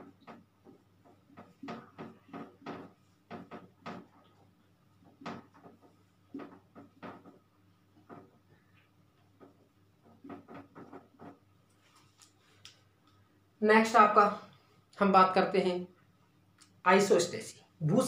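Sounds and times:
marker pen writing on whiteboard: 0.0s - 12.1s.

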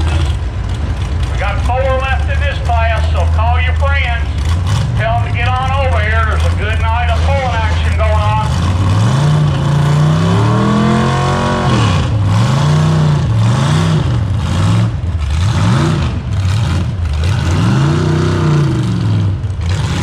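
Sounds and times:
truck engine revving under load: 0.0s - 20.0s.

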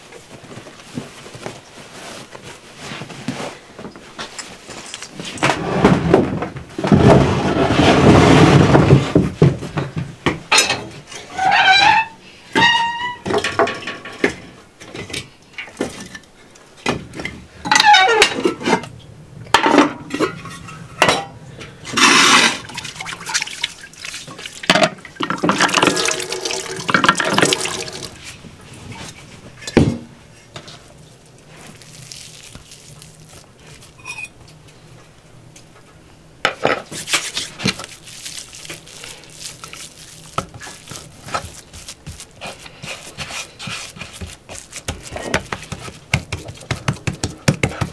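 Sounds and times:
water splashing into basin: 22.5s - 28.2s.

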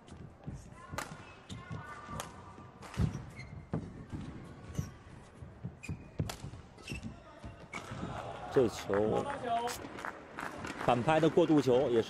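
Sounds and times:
shoes squeaking: 0.2s - 8.0s.

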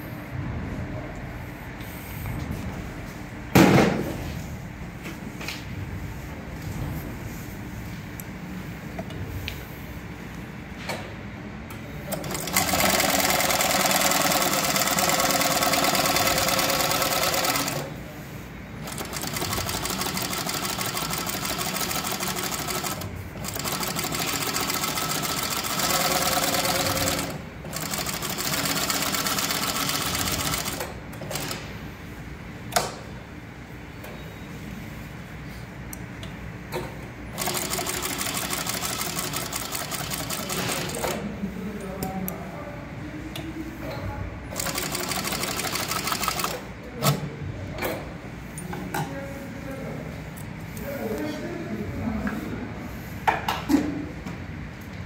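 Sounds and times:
sewing machine stitching leather: 12.1s - 17.9s, 18.8s - 31.6s, 37.4s - 41.1s, 44.6s - 46.6s.

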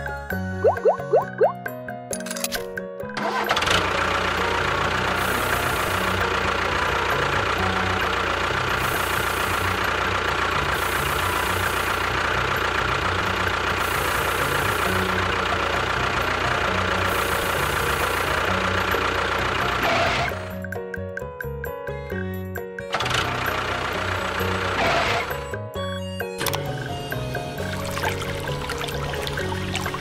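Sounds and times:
small motor whining and rattling: 3.2s - 20.7s, 22.9s - 25.6s.

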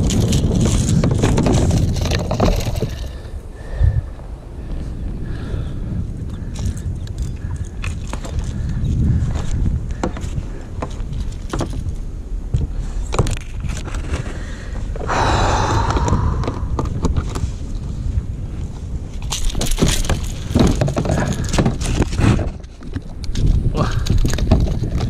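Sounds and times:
gear clicks and knocks: 0.0s - 3.1s, 6.5s - 12.0s, 19.2s - 25.0s
wind and water rumble: 0.0s - 25.0s.

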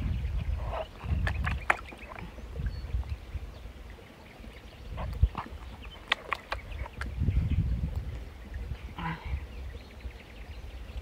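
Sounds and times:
water sloshing and splashing: 0.0s - 7.2s.

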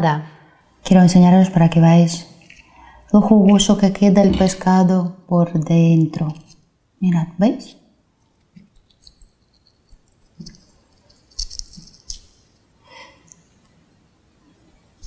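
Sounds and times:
fried fish crackling and crunching: 8.7s - 12.5s.

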